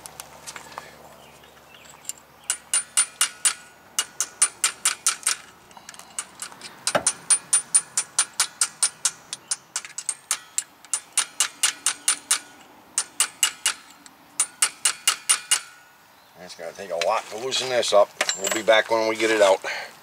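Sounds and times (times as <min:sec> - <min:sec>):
hammer tapping steel punch: 0:02.5 - 0:05.4, 0:06.2 - 0:15.8.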